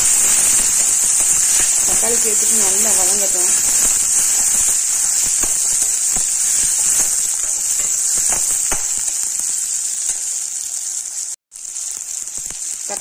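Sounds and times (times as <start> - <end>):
vegetables sizzling in hot oil: 0.0 - 13.0
metal spoon scraping pan: 0.2 - 10.3.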